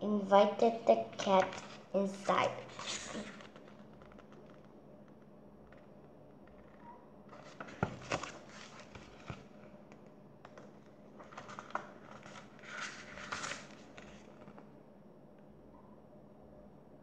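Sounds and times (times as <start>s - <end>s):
book pages rustling: 1.1s - 4.7s, 6.5s - 14.7s.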